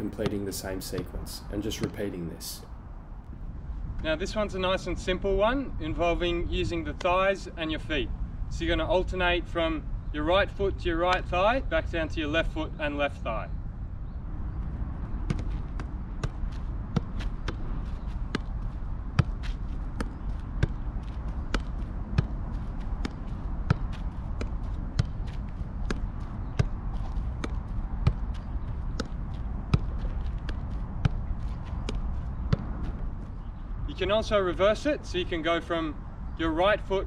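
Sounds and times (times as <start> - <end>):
ball thudding on foot: 15.2 - 33.0.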